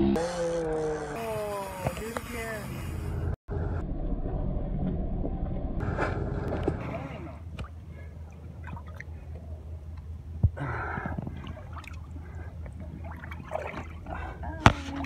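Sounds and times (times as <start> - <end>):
water gurgling against boat: 3.5 - 15.0.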